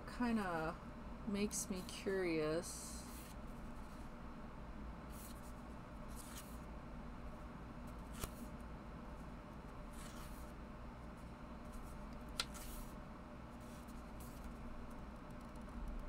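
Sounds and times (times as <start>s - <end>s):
faint low hum: 0.0s - 16.0s
paper pages rustling: 6.1s - 6.6s, 8.0s - 8.5s, 9.9s - 10.5s, 11.6s - 13.0s.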